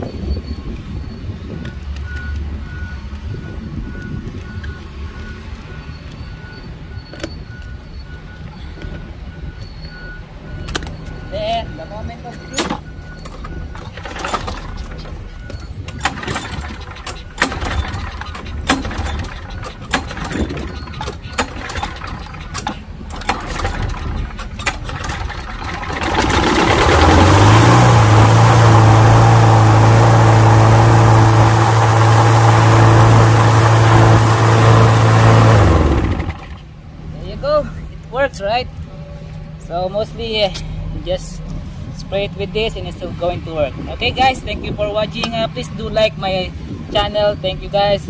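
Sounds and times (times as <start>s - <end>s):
engine knocking and clatter: 12.8s - 36.7s
lawn mower engine running: 13.0s - 36.8s.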